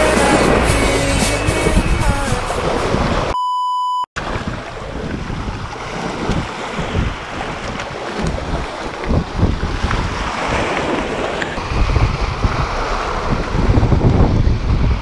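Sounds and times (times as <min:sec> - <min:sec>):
background music: 0:00.0 - 0:02.8
waves washing over rocks: 0:00.0 - 0:03.3, 0:04.2 - 0:15.0
wind buffeting microphone: 0:00.0 - 0:03.3, 0:04.2 - 0:15.0
electronic beep: 0:03.3 - 0:04.1.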